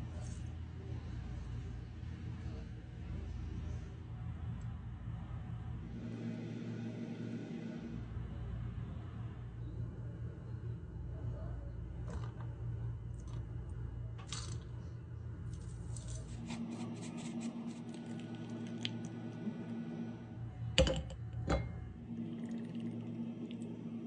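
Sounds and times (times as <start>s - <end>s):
low hum: 0.0s - 24.0s
fork scraping ceramic bowl: 15.9s - 18.8s.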